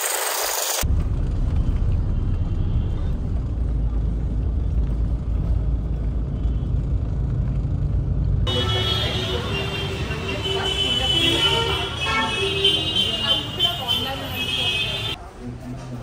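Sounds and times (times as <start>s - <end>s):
street traffic noise: 0.8s - 16.0s
car horns tooting: 8.5s - 15.2s.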